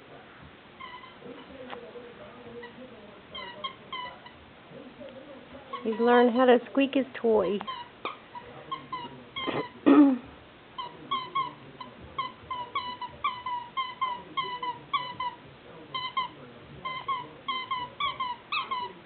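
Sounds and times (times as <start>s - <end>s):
dog toy squeaking: 0.8s - 1.6s, 2.5s - 4.4s, 5.7s - 6.4s, 7.4s - 9.8s, 10.8s - 19.0s.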